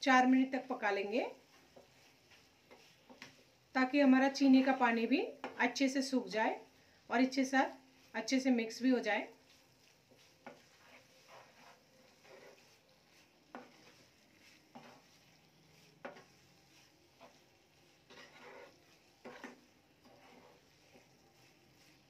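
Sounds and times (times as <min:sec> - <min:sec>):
low sizzle: 0:00.0 - 0:22.0
wooden spatula scraping a pan: 0:00.3 - 0:22.0.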